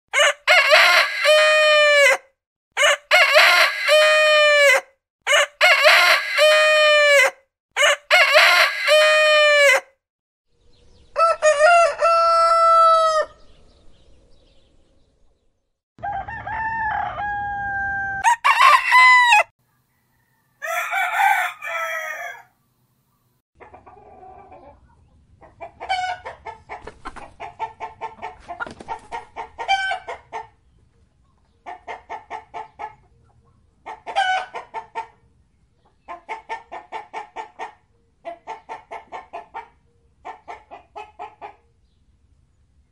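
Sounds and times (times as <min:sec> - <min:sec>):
roosters crowing: 0:00.1 - 0:09.9, 0:11.1 - 0:13.4, 0:16.0 - 0:22.6.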